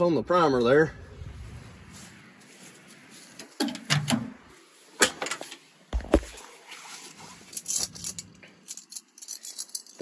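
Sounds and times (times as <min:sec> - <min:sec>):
mechanical clunks and knocks: 0:03.6 - 0:04.4.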